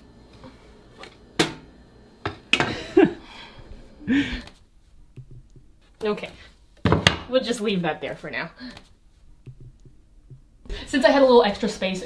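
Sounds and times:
picture frame knocking on wall: 9.5s - 10.5s.

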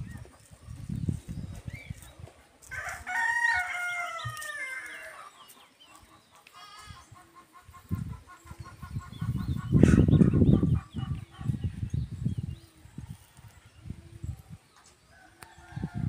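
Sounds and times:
rooster crowing: 2.7s - 5.2s.

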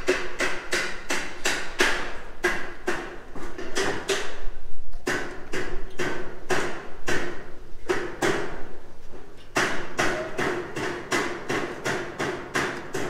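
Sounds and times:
hammer blows ringing: 9.6s - 13.0s.

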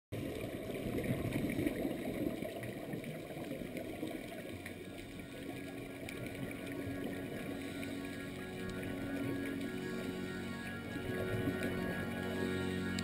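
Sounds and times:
muffled underwater rumble: 0.2s - 13.0s
faint ticks: 3.0s - 13.0s
steady low tone: 3.9s - 13.0s.

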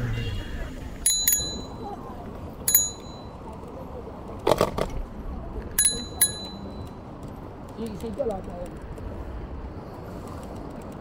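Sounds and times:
bicycle riding noise: 0.0s - 11.0s
bicycle bell dings: 1.0s - 1.9s, 2.7s - 3.4s, 5.8s - 6.9s.

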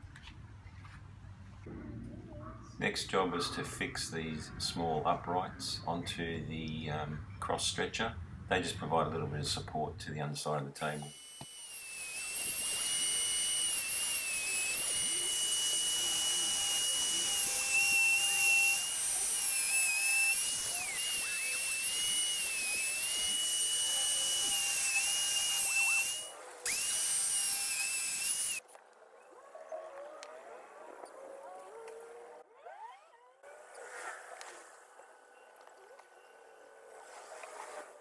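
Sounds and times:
electric router whining: 10.8s - 28.6s.

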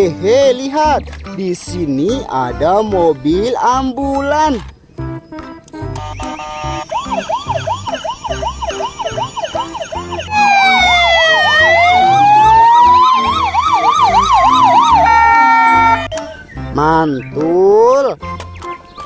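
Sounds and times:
ambulance sirens wailing: 5.8s - 16.2s
toy siren yelping: 6.0s - 16.2s.

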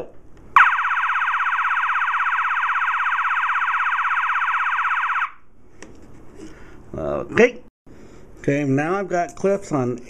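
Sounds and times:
fire alarm horn pulsing high tone: 0.6s - 5.4s.

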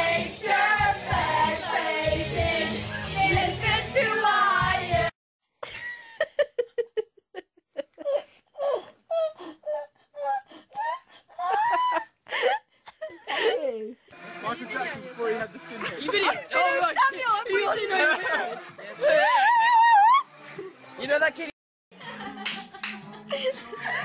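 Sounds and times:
pop music with singing: 0.0s - 5.1s, 22.0s - 24.0s
young women laughing: 5.6s - 9.4s, 10.8s - 14.0s, 17.6s - 20.2s, 22.0s - 24.0s.

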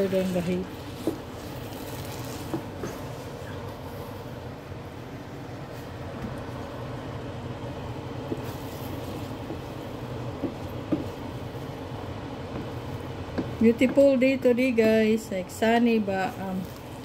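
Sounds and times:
rice cooking low rumble: 0.0s - 17.0s
wooden spoon knocking pan: 10.3s - 11.2s.

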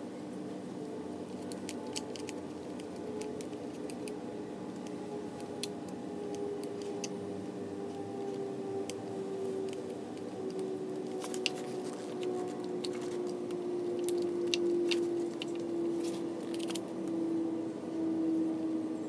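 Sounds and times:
steady background hum: 0.0s - 19.0s
small metallic clicks: 16.4s - 17.2s.

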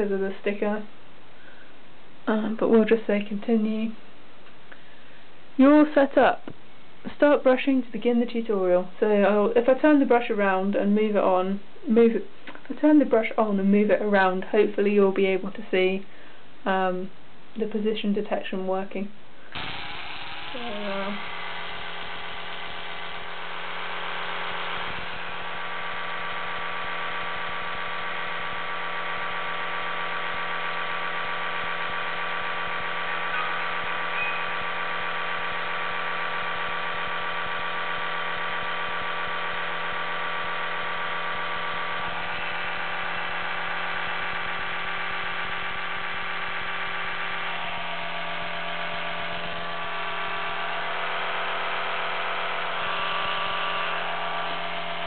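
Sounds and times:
electric toothbrush humming: 19.5s - 55.0s.

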